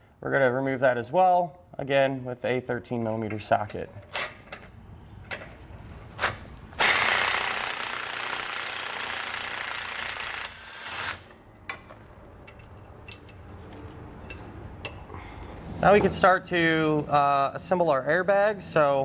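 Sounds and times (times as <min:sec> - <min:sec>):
pneumatic tool spinning bolt: 0:06.8 - 0:11.4.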